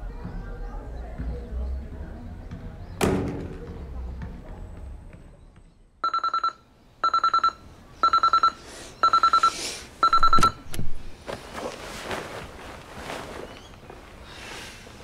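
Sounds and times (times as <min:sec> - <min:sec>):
digital alarm clock beeping: 0:06.0 - 0:10.6
bedclothes rustling: 0:10.9 - 0:14.2.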